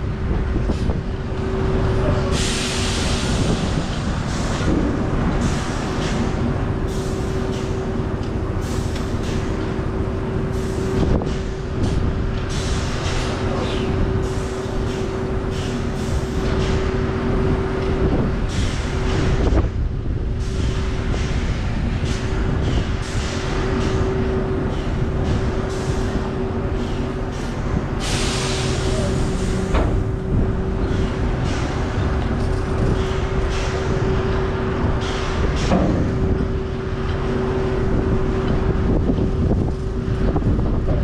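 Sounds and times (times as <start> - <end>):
truck engine whine and rumble: 0.0 - 41.0.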